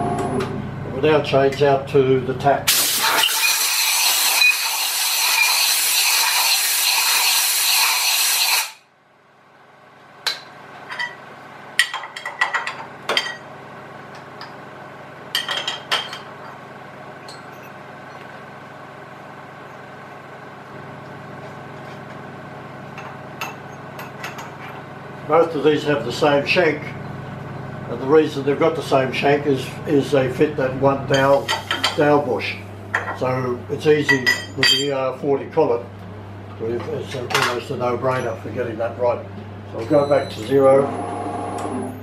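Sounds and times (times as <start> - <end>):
air blow gun hissing: 2.7 - 8.8
steady low hum: 8.9 - 41.1
metal tools clinking: 34.1 - 35.0.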